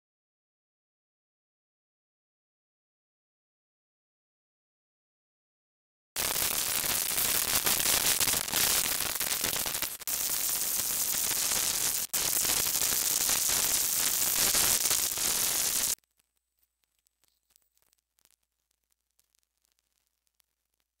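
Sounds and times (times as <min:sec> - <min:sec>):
loud static hiss: 0:06.2 - 0:16.0.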